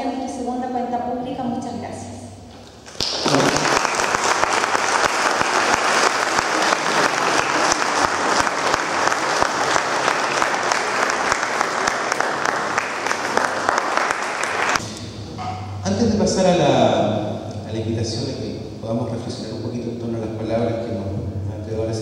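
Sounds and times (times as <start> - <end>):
audience applauding: 2.8 - 14.8.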